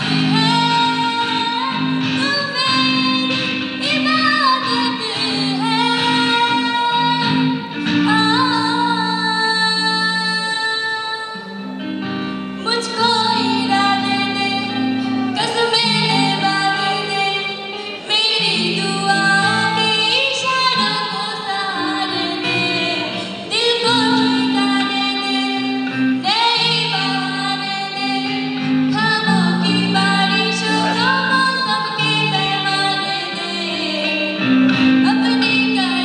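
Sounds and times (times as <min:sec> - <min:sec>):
electric guitar: 0:00.0 - 0:36.0
woman singing into microphone: 0:00.0 - 0:36.0.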